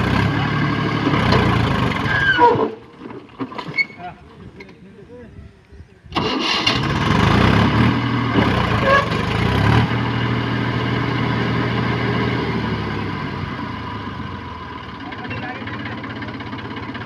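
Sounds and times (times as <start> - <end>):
tractor diesel engine running hard: 0.0 - 2.6, 6.2 - 17.0.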